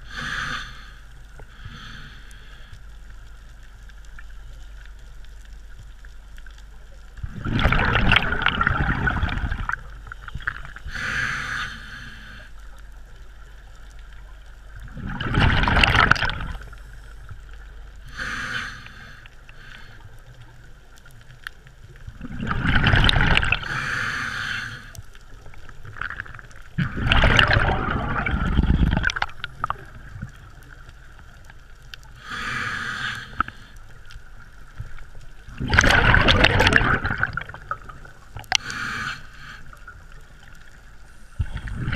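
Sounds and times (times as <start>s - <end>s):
bubbling exhalations underwater: 7.2s - 10.9s, 14.8s - 16.8s, 22.1s - 23.8s, 25.8s - 30.4s, 35.5s - 38.6s, 41.4s - 41.9s.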